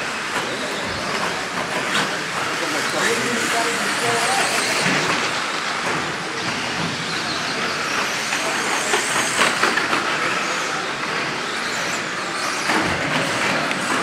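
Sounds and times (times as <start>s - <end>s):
electric motors whining: 0.0s - 14.0s
rc trucks clattering: 0.0s - 14.0s
tyre and chassis noise: 0.0s - 14.0s.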